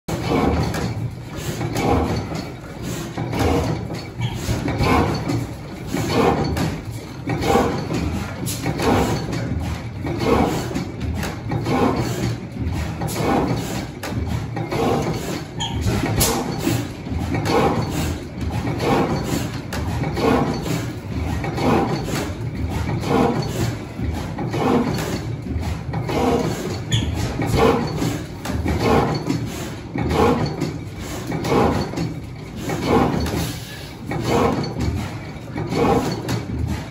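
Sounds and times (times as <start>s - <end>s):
stationary gas engine running slowly: 0.1s - 36.9s.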